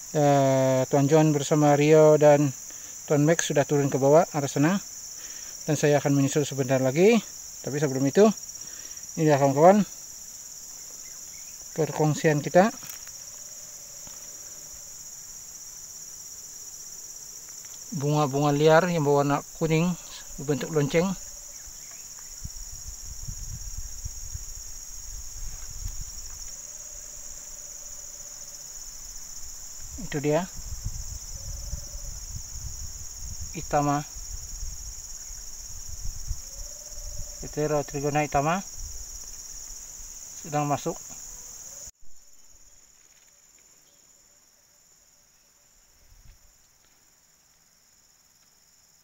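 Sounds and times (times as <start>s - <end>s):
insects shrilling: 0.0s - 44.0s
wind buffeting microphone: 22.3s - 26.5s, 29.4s - 37.6s, 38.6s - 39.6s.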